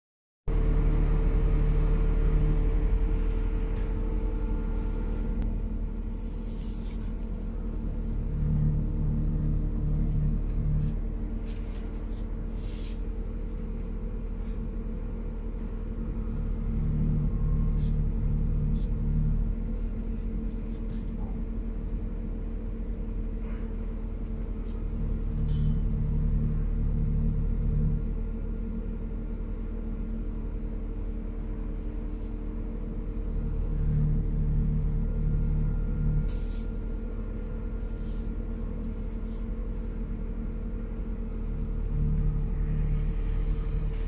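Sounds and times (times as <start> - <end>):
low droning music: 0.5 - 44.0.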